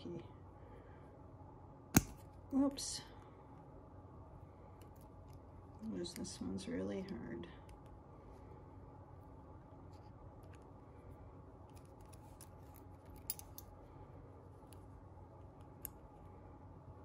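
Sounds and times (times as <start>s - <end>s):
pliers clicking on wire: 2.0s - 2.2s, 13.1s - 13.7s.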